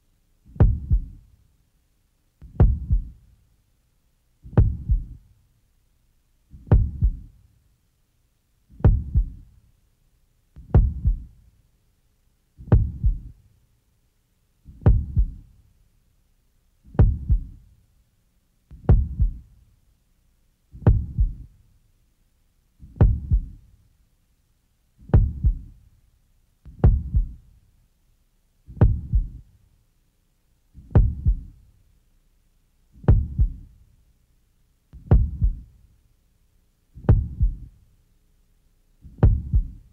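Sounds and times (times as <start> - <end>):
heartbeat thuds: 0.5 - 1.2, 2.4 - 3.2, 4.4 - 5.2, 6.5 - 7.4, 8.7 - 9.5, 10.6 - 11.4, 12.6 - 13.4, 14.7 - 15.5, 16.9 - 17.6, 18.7 - 19.5, 20.8 - 21.5, 22.8 - 23.6, 25.0 - 25.8, 26.7 - 27.5, 28.7 - 29.5, 30.8 - 31.6, 33.0 - 33.7, 35.0 - 35.7, 37.0 - 37.8, 39.0 - 39.9.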